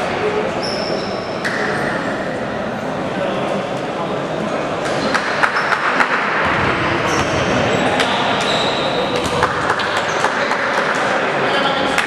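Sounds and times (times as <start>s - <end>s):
sports hall noise: 0.0s - 12.0s
sneaker squeaks: 0.5s - 2.1s, 4.8s - 10.3s.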